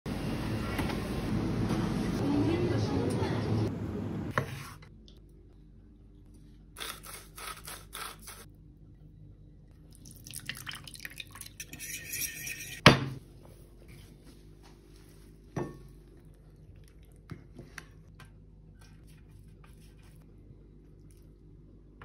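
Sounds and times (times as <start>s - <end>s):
spoon stirring in ceramic bowl: 11.3s - 12.8s.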